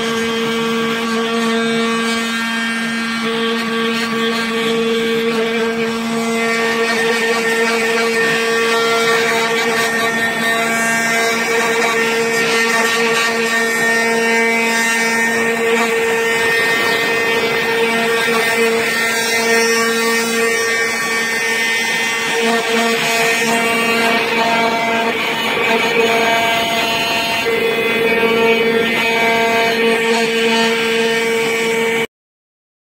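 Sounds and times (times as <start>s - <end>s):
spindle motor and fan hum: 0.0s - 32.1s.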